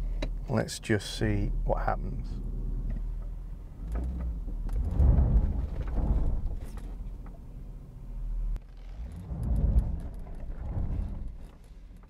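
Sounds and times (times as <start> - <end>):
tyres rumbling on gravel: 4.7 - 7.2, 9.0 - 11.9.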